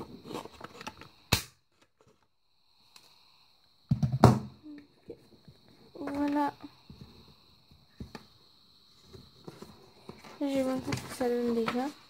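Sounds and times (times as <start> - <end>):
knocks and thumps: 3.9 - 4.6.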